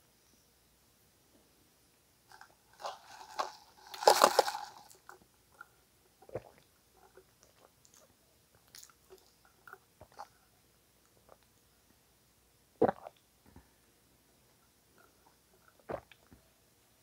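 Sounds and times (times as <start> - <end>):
crunchy chewing: 2.3 - 5.7.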